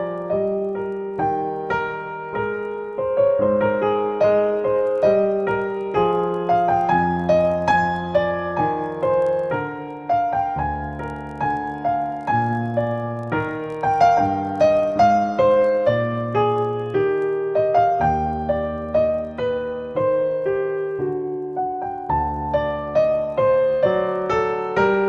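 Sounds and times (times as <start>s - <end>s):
slow piano melody: 0.0s - 25.0s.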